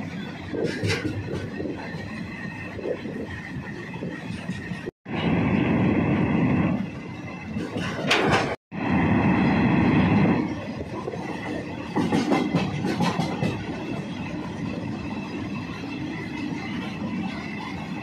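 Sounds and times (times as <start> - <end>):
rail-joint clacks: 0.0 - 4.9, 7.4 - 8.6, 10.6 - 18.0
train wheels rumbling on rail: 0.0 - 18.0.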